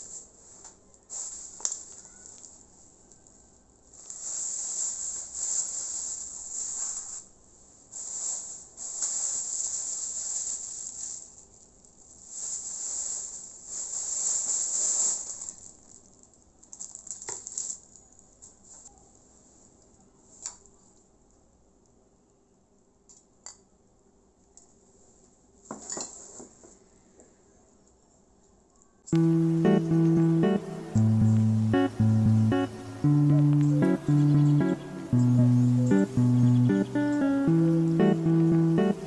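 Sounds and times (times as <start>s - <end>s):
plastic bags rustling: 0.0s - 2.7s, 3.9s - 18.0s.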